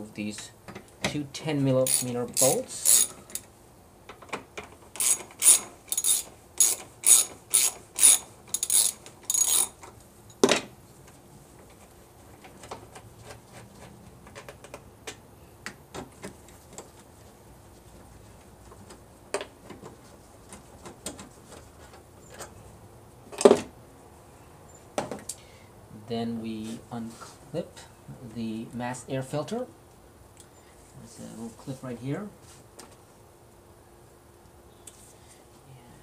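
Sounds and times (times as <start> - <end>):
socket ratchet clicking: 1.8 - 3.5, 4.9 - 9.8.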